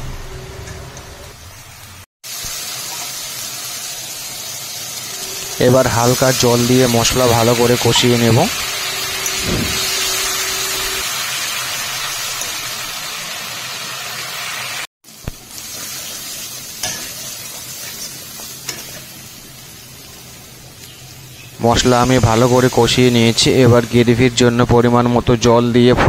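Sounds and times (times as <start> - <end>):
spice paste sizzling in oil: 1.4 - 24.2.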